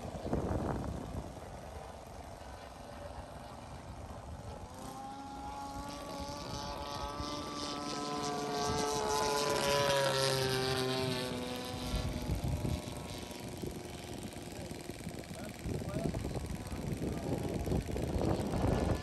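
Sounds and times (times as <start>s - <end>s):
small propeller aircraft engine buzzing: 0.0s - 19.0s.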